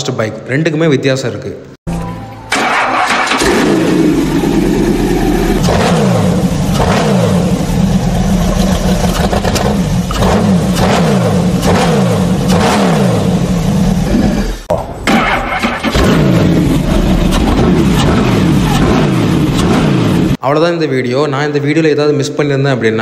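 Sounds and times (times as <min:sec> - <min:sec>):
motorcycle engine revving: 0:02.5 - 0:20.4.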